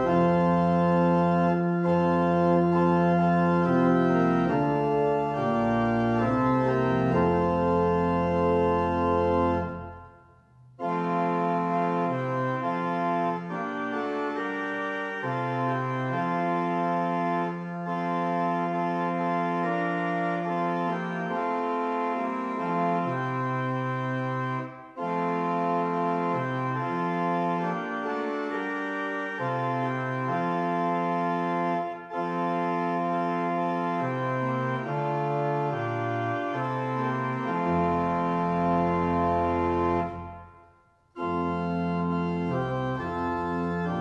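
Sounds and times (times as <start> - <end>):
deep organ pedal bass: 0.0 - 10.1, 10.8 - 40.5, 41.2 - 44.0
organ playing held chords: 0.0 - 44.0.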